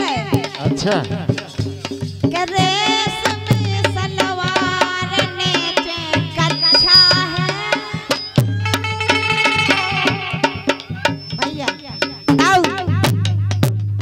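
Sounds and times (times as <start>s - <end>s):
woman singing: 0.0s - 0.6s, 2.3s - 8.1s
harmonium: 2.4s - 14.0s.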